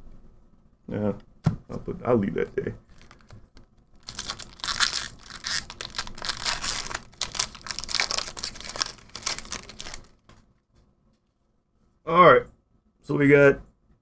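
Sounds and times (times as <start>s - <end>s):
foil wrapper crinkling and tearing: 2.8s - 3.4s, 4.0s - 10.4s.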